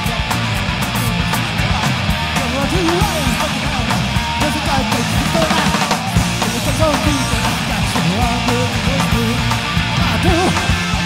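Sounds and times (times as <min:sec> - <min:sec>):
drums: 0:00.0 - 0:11.0
electric guitar: 0:00.0 - 0:11.0
punk rock band playing live: 0:00.0 - 0:11.0.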